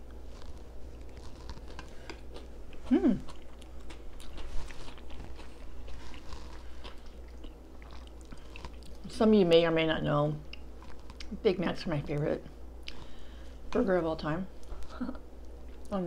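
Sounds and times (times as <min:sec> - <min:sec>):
soft crunches: 0:00.0 - 0:09.0
chewing food close up: 0:00.0 - 0:09.1, 0:10.4 - 0:11.4
person humming: 0:02.9 - 0:03.3.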